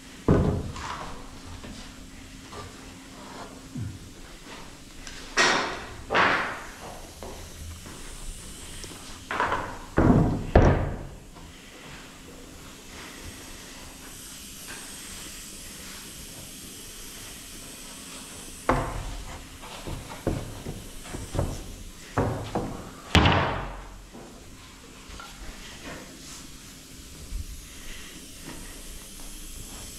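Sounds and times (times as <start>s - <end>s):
wood knocks and bangs: 9.3s - 11.2s, 19.8s - 23.9s.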